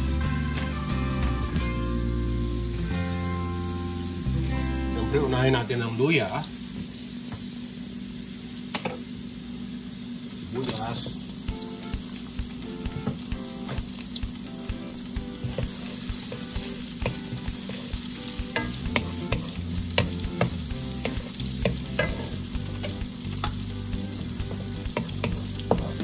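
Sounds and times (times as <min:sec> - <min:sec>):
food sizzling in hot oil: 0:00.0 - 0:26.0
utensil scraping a pan: 0:15.4 - 0:26.0.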